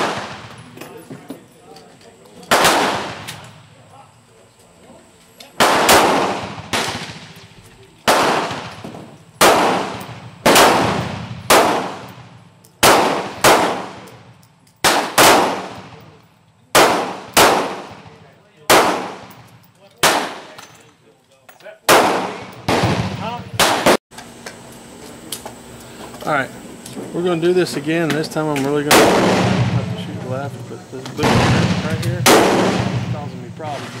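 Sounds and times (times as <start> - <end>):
gunshots echoing: 0.0 - 0.6, 2.5 - 3.6, 5.6 - 20.6, 21.9 - 24.0, 28.8 - 30.2, 31.2 - 34.0.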